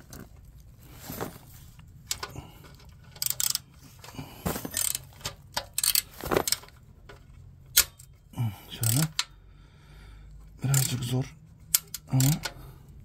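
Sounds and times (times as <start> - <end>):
ratchet wrench clicking: 2.0 - 3.8, 4.7 - 8.1, 8.7 - 9.4, 10.6 - 11.1, 11.7 - 13.0.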